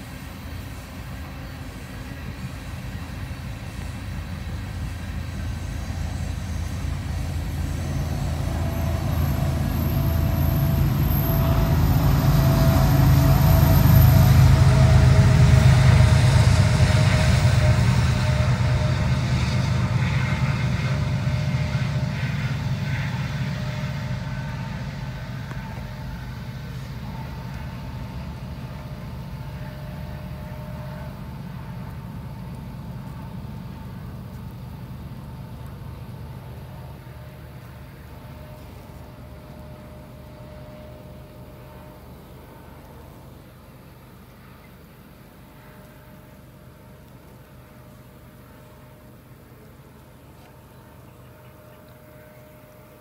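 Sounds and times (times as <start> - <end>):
passing vehicle engine hum: 1.7 - 42.1.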